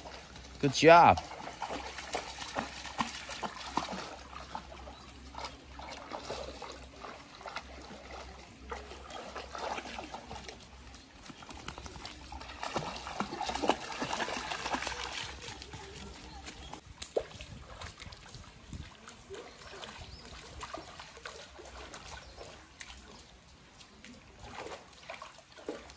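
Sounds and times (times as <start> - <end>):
dog splashing through water: 0.0 - 25.9.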